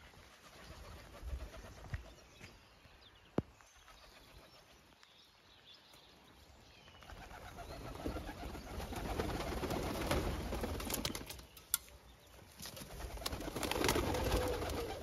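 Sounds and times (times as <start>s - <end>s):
doves wings flapping: 7.0s - 11.8s, 12.4s - 15.0s.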